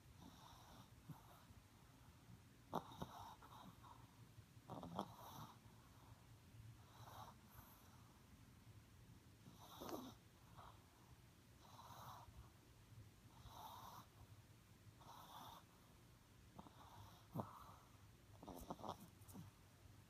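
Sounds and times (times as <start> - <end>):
dog snoring softly: 0.1 - 1.9, 2.7 - 6.2, 6.8 - 8.2, 9.4 - 12.5, 13.3 - 14.3, 15.0 - 19.6.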